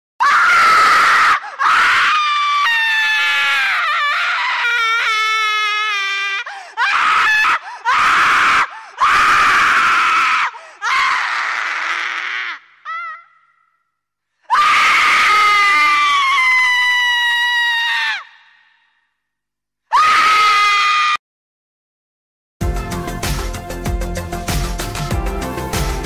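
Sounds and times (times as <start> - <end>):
screams: 0.2 - 19.2, 19.9 - 21.2.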